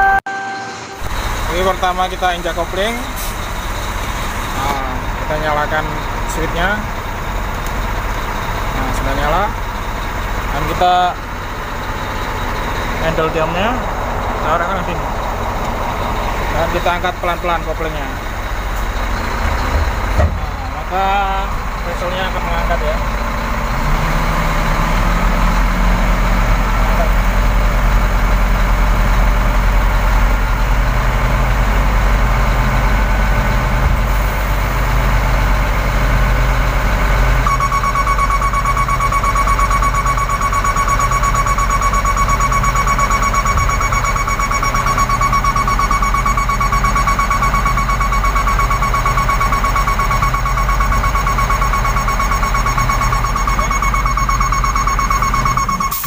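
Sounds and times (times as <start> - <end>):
low pulsing beep: 0.0 - 3.2, 37.4 - 56.0
high-pitched warning tone: 0.0 - 3.6, 12.4 - 15.3, 15.9 - 27.4, 37.4 - 56.0
truck diesel engine running: 0.0 - 56.0.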